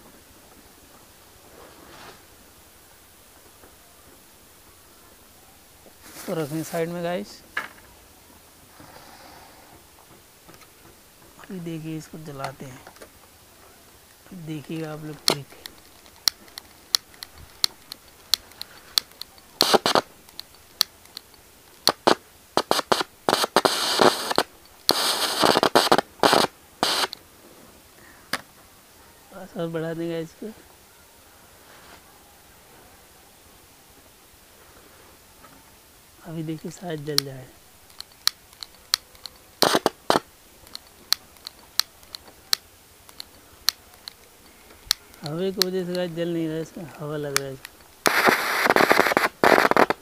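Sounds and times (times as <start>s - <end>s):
gas hissing: 5.9s - 7.4s, 14.0s - 27.2s, 36.2s - 50.0s
piezo lighter snapping: 37.9s - 44.2s.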